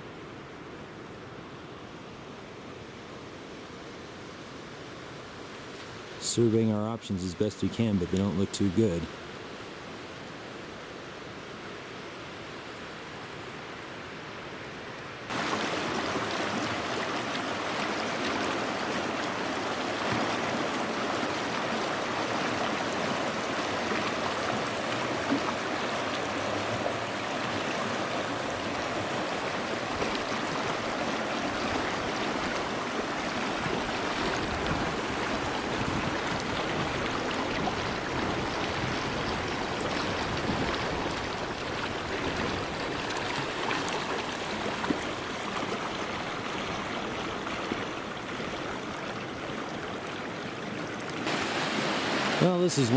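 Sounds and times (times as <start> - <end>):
creek rushing over rocks: 15.2 - 52.9.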